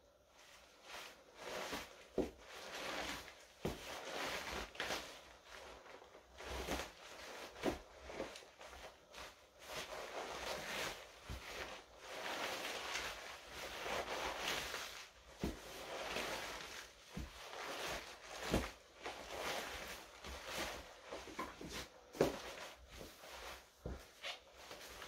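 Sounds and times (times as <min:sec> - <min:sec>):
fabric rustling and swishing: 0:00.0 - 0:25.0
boots thumping on wooden floor: 0:21.3 - 0:22.6.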